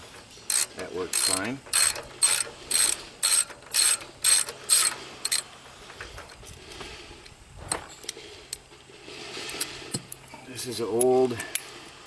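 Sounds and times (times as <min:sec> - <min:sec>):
ratchet clicking: 0:00.5 - 0:05.5.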